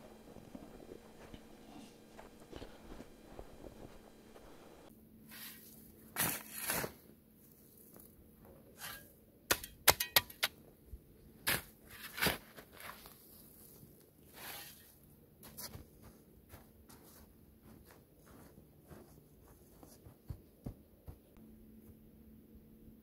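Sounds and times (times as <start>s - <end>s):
spade scraping into earth: 5.3s - 7.0s, 8.7s - 9.2s, 14.3s - 15.0s.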